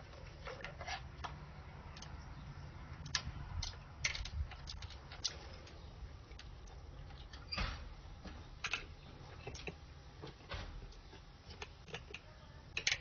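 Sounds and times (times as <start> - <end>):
plastic toy cups clicking: 12.8 - 13.0.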